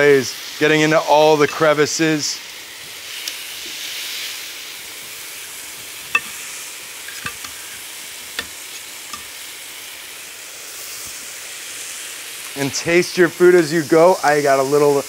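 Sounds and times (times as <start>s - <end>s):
chicken sizzling on grill pan: 0.0s - 15.0s.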